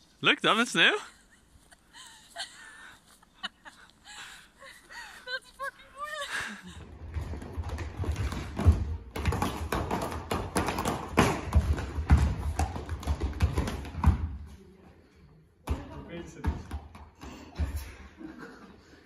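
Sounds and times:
shoes tapping and stamping: 7.0s - 14.5s.

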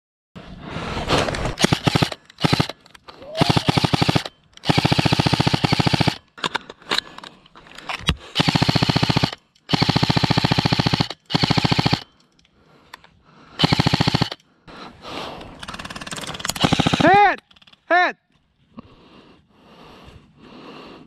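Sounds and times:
airsoft rifle automatic fire: 1.6s - 6.2s, 8.4s - 12.1s, 13.6s - 14.4s, 15.7s - 17.3s.

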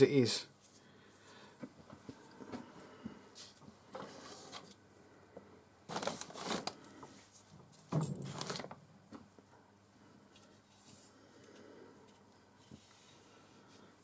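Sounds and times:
tools scraping and rustling: 7.8s - 8.8s.

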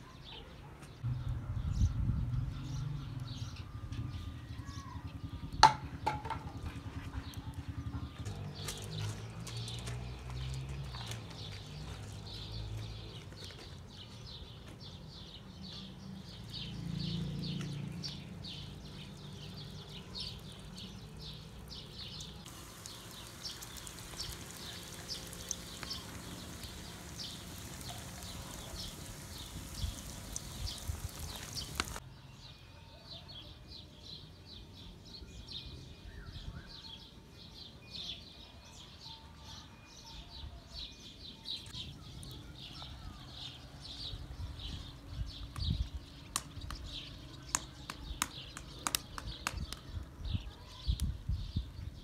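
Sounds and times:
small birds chirping: 0.0s - 52.0s
dough frying in hot oil: 18.6s - 32.0s.

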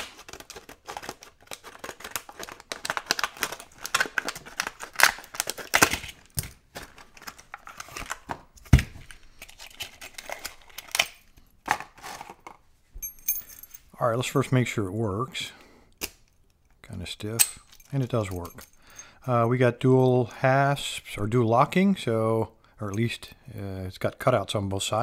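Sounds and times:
plastic crackling: 0.0s - 12.5s.

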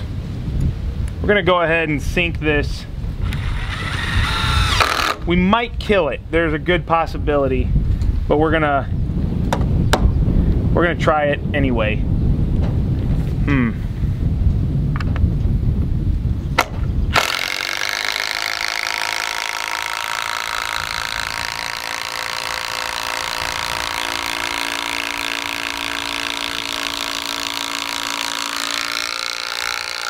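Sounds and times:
wind rumbling on microphone: 0.0s - 30.0s
impact driver driving screw into wood: 3.3s - 5.2s, 16.6s - 30.0s.

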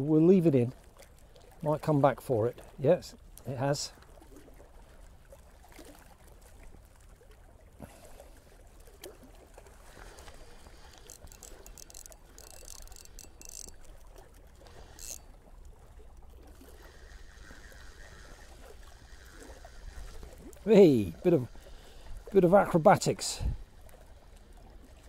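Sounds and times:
water lapping at shoreline: 0.0s - 25.0s
small clicks: 10.3s - 13.9s, 15.0s - 15.2s.

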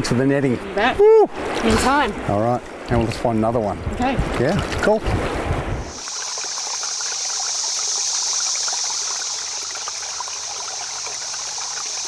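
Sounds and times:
stream babbling: 0.0s - 12.0s.

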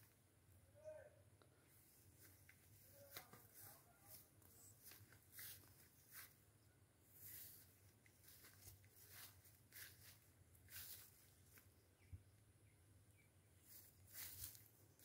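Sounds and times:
soft rustles: 1.8s - 11.8s, 13.6s - 15.0s.

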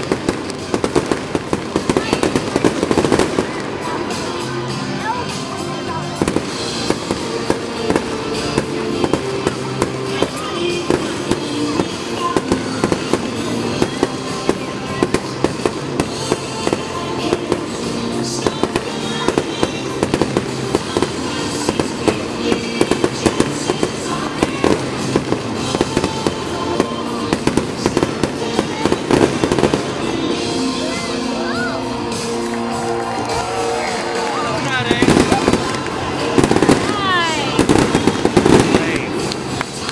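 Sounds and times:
firework crackle: 0.0s - 39.9s
music with held notes: 0.0s - 39.9s
firework shells bursting: 34.8s - 39.9s.

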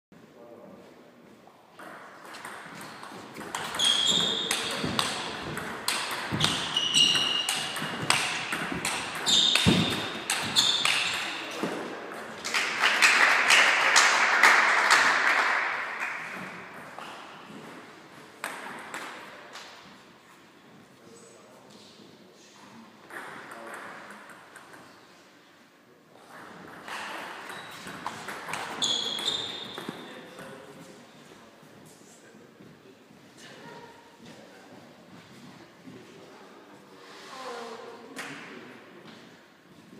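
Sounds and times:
ping pong ball clicking on paddles: 1.8s - 11.4s
short high squeaks: 3.7s - 4.9s, 6.4s - 7.8s, 9.2s - 11.4s, 28.7s - 30.1s.

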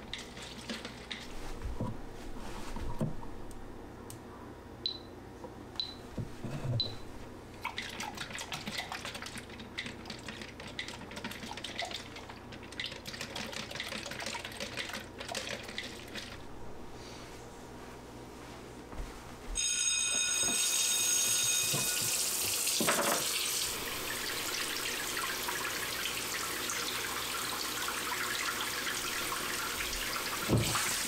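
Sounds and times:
liquid sloshing in plastic tank: 7.6s - 16.5s.

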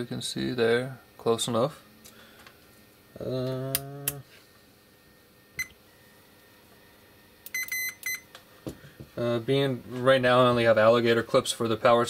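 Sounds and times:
multimeter short beeps: 7.5s - 8.3s.

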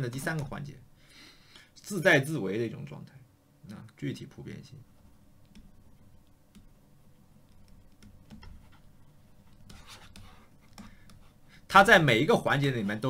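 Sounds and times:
stylus scratching on tablet: 7.4s - 11.9s.

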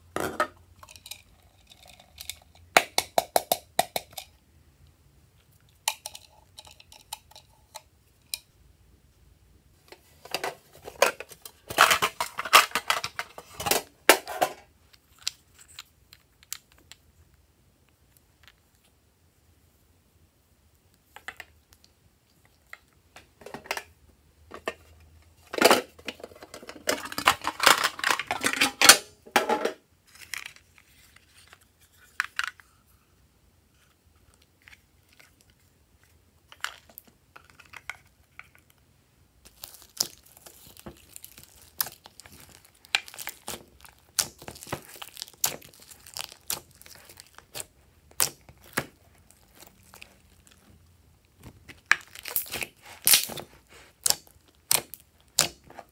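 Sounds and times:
slime clicking and crackling: 39.4s - 50.8s, 51.4s - 55.6s
slime crackling and popping: 39.4s - 55.6s.

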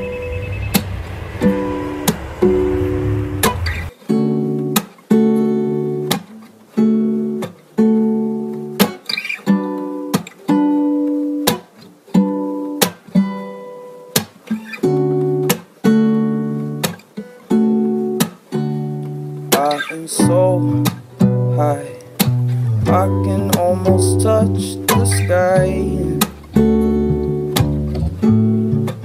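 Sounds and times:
acoustic guitar strumming chords: 17.7s - 29.0s.

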